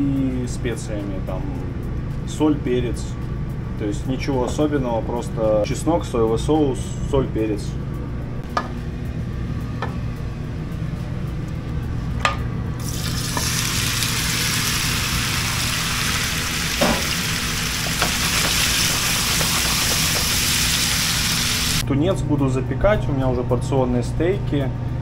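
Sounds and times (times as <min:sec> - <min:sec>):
steady low hum: 0:00.0 - 0:25.0
meat sizzling in a frying pan: 0:12.8 - 0:21.8.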